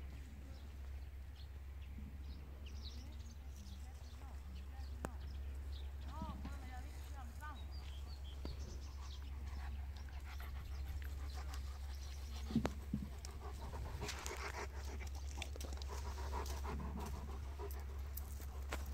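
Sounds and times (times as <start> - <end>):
dog panting: 7.7 - 18.9.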